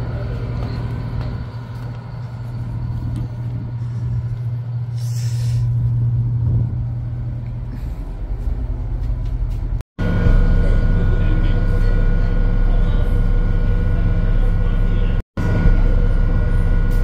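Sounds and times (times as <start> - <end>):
ferry engine droning: 0.0 - 17.0.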